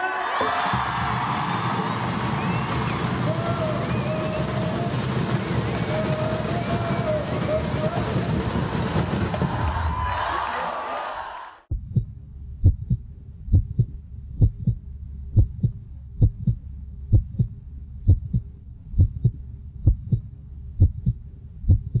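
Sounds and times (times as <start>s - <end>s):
heartbeat thumps: 11.7s - 22.0s.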